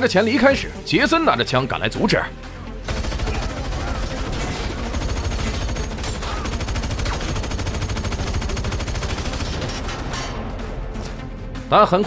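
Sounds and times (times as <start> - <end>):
automatic gunfire: 2.8 - 10.1.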